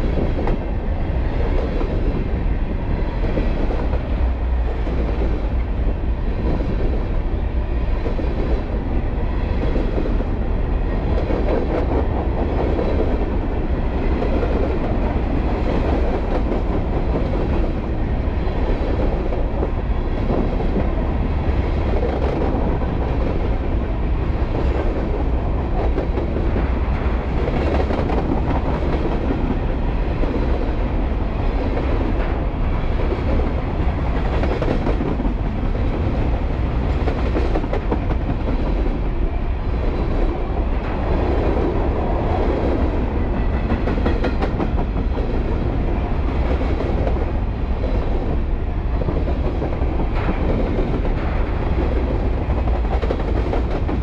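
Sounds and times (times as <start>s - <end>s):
freight train wheels rumbling: 0.0s - 54.0s
train wheels clacking: 39.8s - 54.0s.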